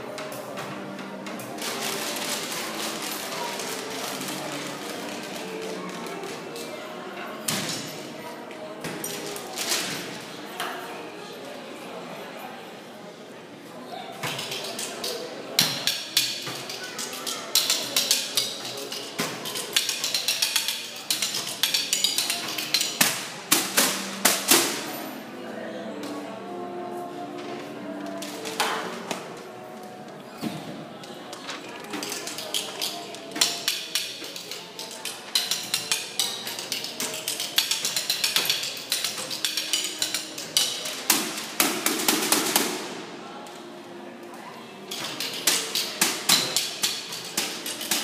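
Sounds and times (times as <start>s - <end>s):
percussion ensemble clicking strikes: 17.5s - 25.0s, 31.9s - 43.0s, 44.9s - 48.0s.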